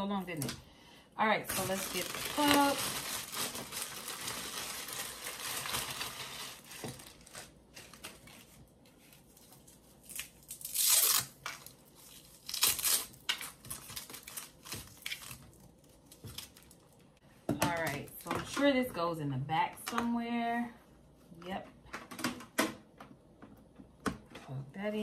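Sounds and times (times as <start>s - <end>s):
plastic packaging crinkling and tearing: 1.4s - 17.1s.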